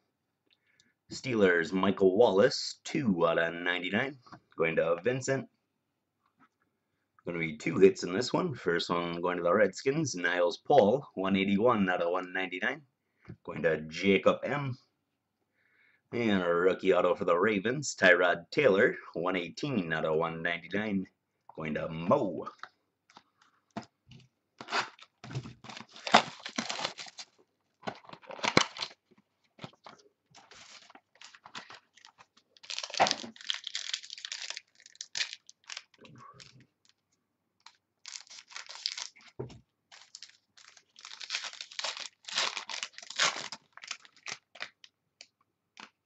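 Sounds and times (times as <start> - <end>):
packaging being torn open: 24.6 - 29.0, 30.4 - 37.0, 37.6 - 39.3, 39.9 - 44.9
wrapper crinkling: 24.6 - 37.0, 37.6 - 44.9.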